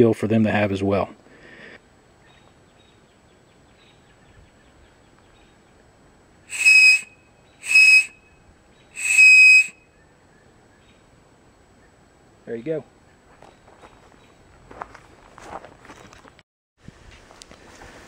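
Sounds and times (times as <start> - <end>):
high-pitched wooden whistle blasts: 6.5 - 10.0.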